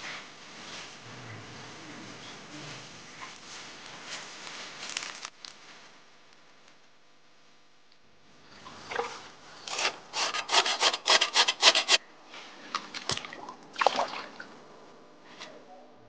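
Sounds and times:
cleaver scraping pork rind: 9.6s - 12.0s.

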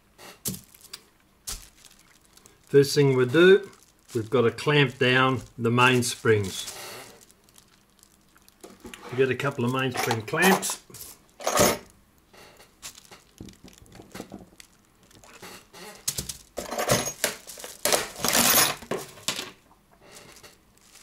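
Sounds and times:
metal clamps clinking in plastic tub: 9.7s - 10.8s.

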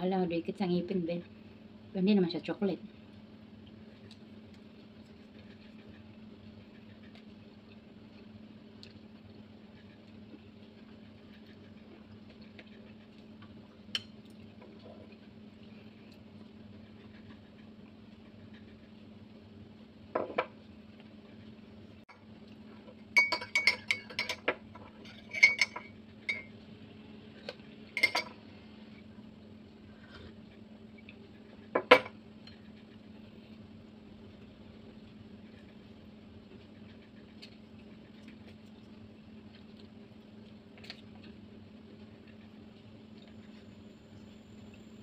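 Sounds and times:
metal spoon clinking on crockery: 23.2s - 26.5s, 28.0s - 28.3s.

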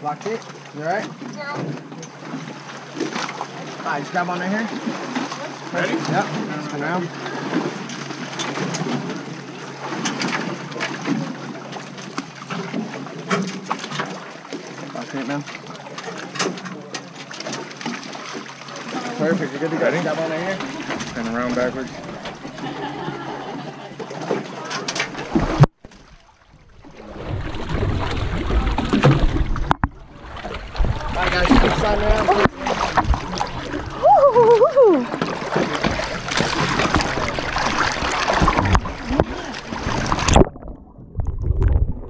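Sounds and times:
water sloshing against hull: 0.0s - 42.0s
sharp knocks or splashes: 24.2s - 33.8s, 35.1s - 42.0s.

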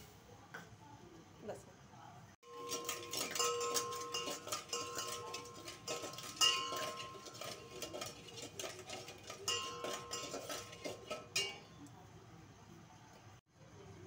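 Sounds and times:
spoon clinking in metal pot: 2.4s - 11.8s.

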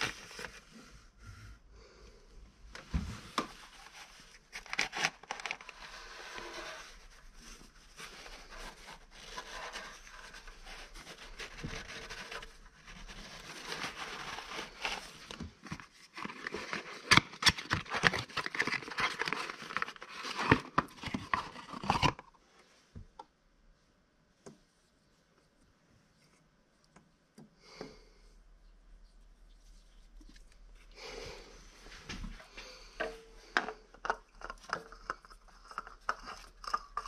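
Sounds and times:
cardboard crinkling and clicks: 4.4s - 5.8s, 13.6s - 22.3s
cardboard box opening: 13.2s - 22.2s.

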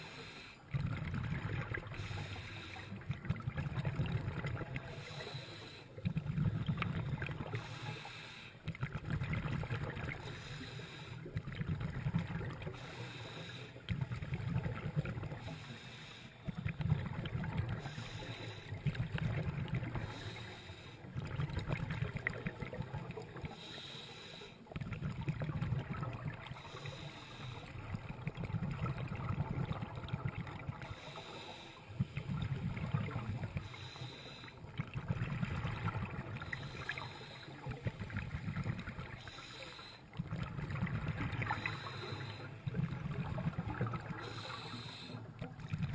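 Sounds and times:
regulator hissing inhalations: 0.0s - 0.7s, 2.0s - 3.0s, 4.8s - 6.0s, 7.5s - 8.7s, 10.2s - 11.3s, 12.7s - 13.9s, 15.4s - 16.6s, 17.8s - 18.9s, 20.0s - 21.1s, 23.5s - 24.7s, 26.5s - 27.8s, 30.9s - 32.1s, 33.5s - 34.7s, 36.4s - 37.9s, 39.1s - 40.1s, 41.4s - 42.7s, 44.2s - 45.4s
exhaled bubbles underwater: 0.0s - 45.9s.

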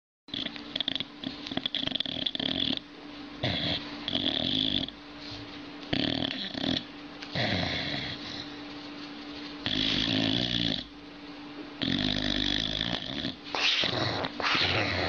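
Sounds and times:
dog snoring: 0.3s - 5.0s, 5.9s - 8.5s, 9.6s - 11.0s, 11.8s - 15.0s.

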